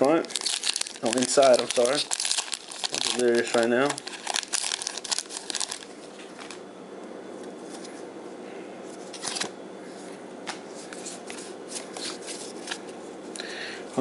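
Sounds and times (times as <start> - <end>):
low room hum: 0.0 - 14.0.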